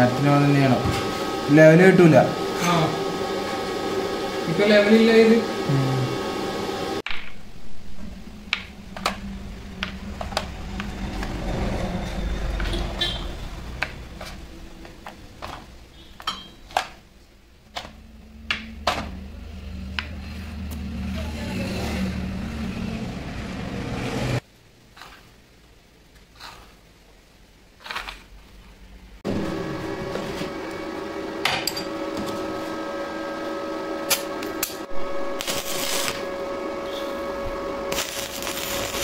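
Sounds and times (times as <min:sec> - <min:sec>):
low hum: 0:01.1 - 0:24.5.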